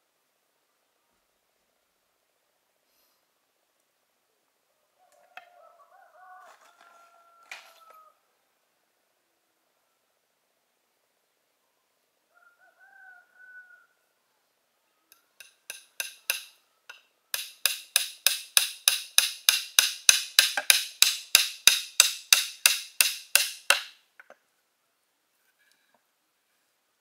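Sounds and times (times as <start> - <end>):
tool striking bamboo: 15.4 - 24.4.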